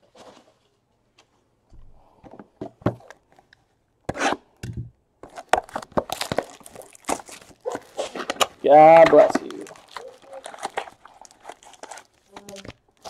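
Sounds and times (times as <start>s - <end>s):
plastic wrap crackling and tearing: 5.2s - 13.0s.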